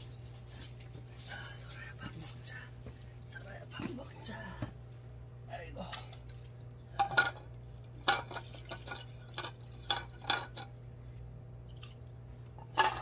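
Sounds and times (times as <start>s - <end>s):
utensil clinking on dish: 12.6s - 13.0s.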